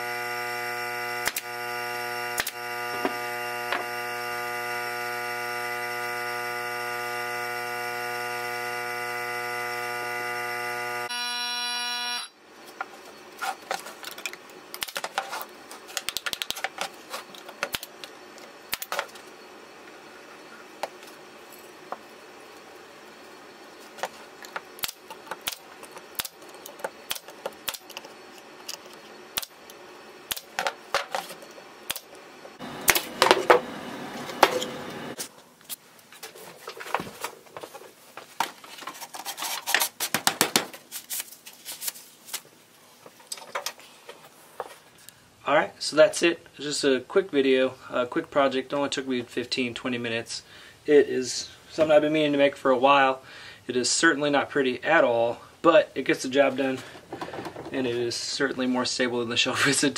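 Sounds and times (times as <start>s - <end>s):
electrical hum: 0.0s - 38.8s
wood pieces and tools knocking: 57.0s - 57.8s.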